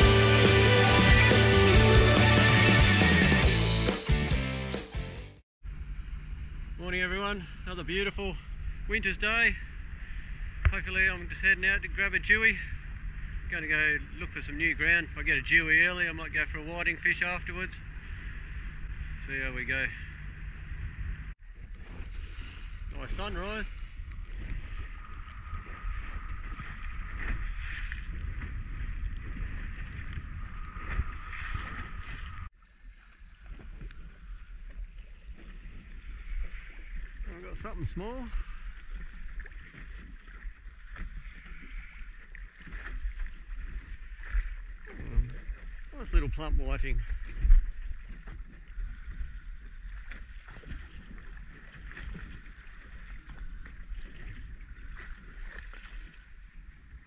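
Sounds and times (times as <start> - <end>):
boat engine drone: 0.0 - 3.9, 5.6 - 32.5, 34.0 - 55.6
water rushing past hull: 0.0 - 3.9, 7.6 - 57.0
water lapping at hull: 7.4 - 57.0
wind on microphone: 20.1 - 32.5, 42.6 - 57.0.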